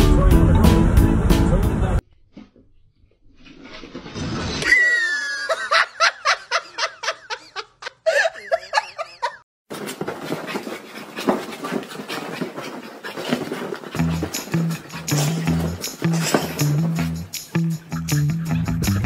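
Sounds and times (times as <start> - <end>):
person laughing hard: 4.7 - 9.4.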